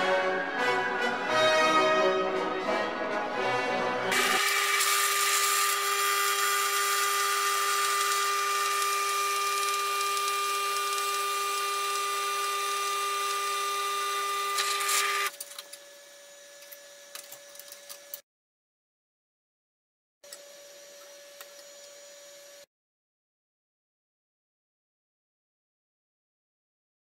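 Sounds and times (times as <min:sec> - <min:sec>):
drill bit cutting hiss: 0:04.1 - 0:15.3
drill press motor whine: 0:04.1 - 0:18.2, 0:20.2 - 0:22.7.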